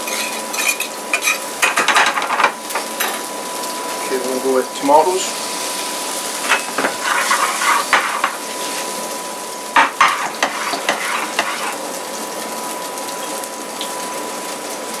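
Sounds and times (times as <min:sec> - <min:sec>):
pan scraping: 0:00.0 - 0:01.5, 0:06.4 - 0:09.0, 0:09.8 - 0:11.9
tomatoes sizzling in frying pan: 0:00.0 - 0:15.0.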